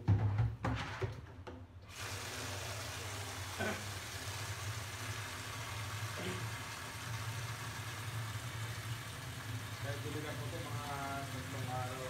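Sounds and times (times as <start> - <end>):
water running into watering can: 1.9 - 12.0.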